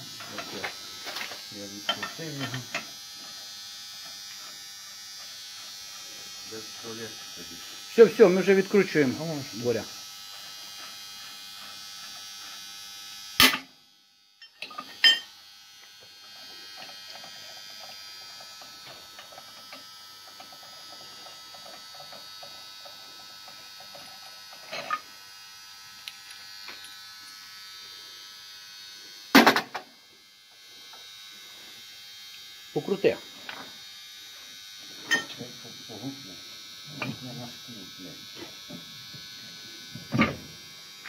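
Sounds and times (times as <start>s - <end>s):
milling machine whine: 0.0s - 3.2s, 14.5s - 22.5s, 34.7s - 36.2s.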